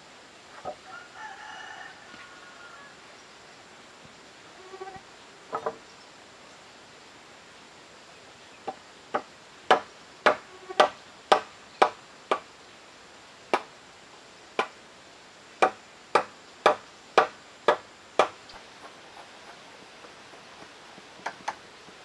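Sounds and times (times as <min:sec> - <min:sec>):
hand tool chopping wood: 0:09.2 - 0:12.4, 0:15.6 - 0:19.0.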